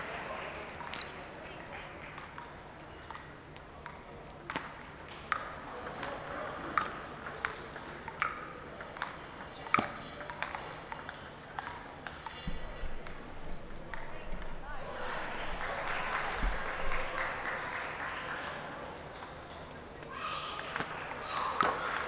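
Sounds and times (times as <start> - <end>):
ping pong ball clicking: 3.0 - 6.1, 6.8 - 14.5.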